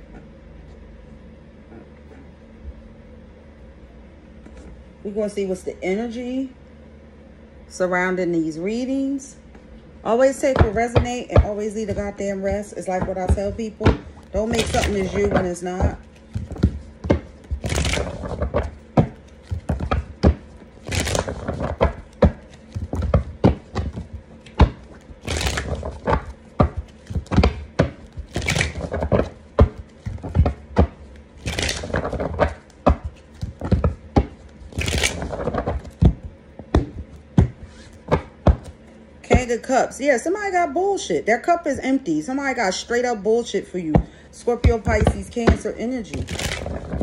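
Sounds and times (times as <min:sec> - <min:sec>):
cards being shuffled: 0:13.0 - 0:39.0, 0:44.8 - 0:47.0.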